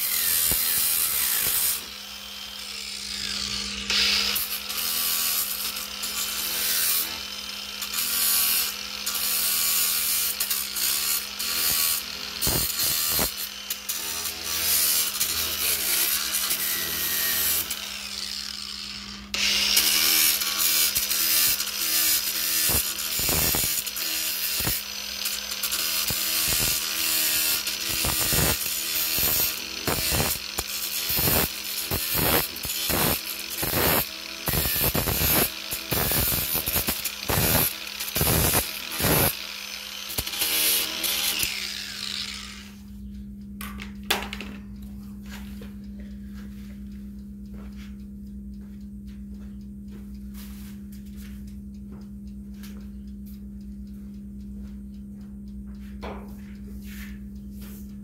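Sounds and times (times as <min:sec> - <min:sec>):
angle grinder motor hum: 0:00.0 - 0:46.1.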